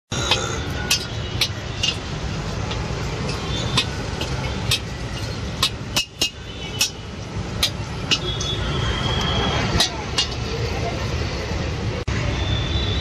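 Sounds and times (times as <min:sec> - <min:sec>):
metal utensils clanking against wok: 0:00.2 - 0:08.6, 0:09.6 - 0:10.7.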